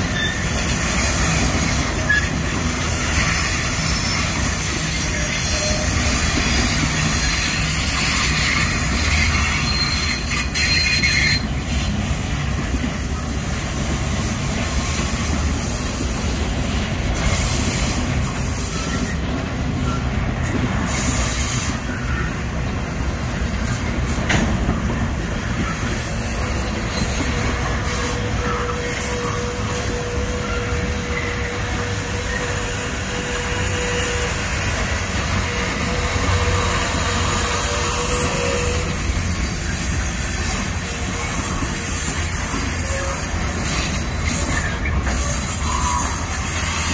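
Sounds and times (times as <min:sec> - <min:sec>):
high-pitched wheel squeals: 0:00.0 - 0:11.9, 0:20.9 - 0:24.4, 0:25.2 - 0:46.9
train wheels rumbling on rail: 0:00.0 - 0:46.9.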